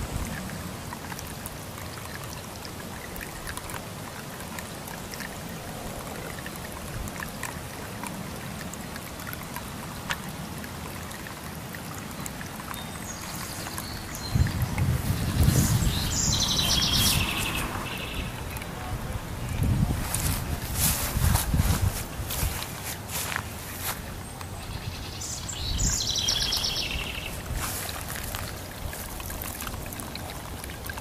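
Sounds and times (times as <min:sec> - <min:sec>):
fountain water splashing: 0:00.0 - 0:31.0
water drips: 0:00.0 - 0:31.0.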